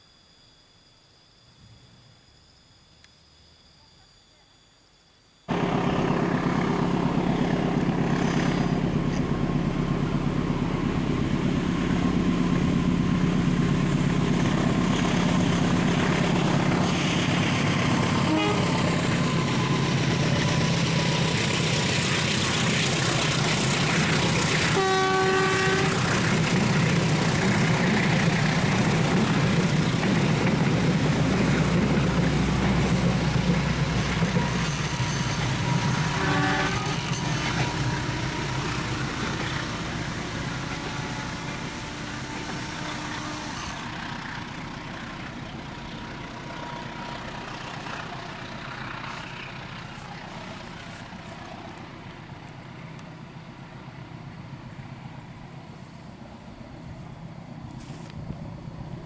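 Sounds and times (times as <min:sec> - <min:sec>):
diesel locomotive engine running: 0:05.5 - 0:59.0
train horn blast: 0:18.0 - 0:19.3, 0:24.5 - 0:26.2, 0:34.2 - 0:43.9.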